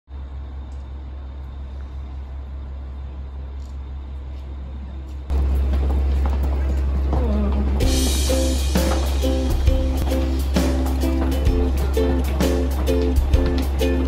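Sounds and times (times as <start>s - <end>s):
railway station background rumble: 0.1s - 14.0s.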